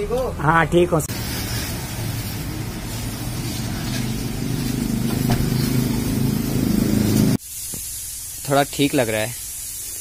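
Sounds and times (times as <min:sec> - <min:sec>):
low motor hum: 0:01.1 - 0:07.4
hose water spraying: 0:01.1 - 0:10.0.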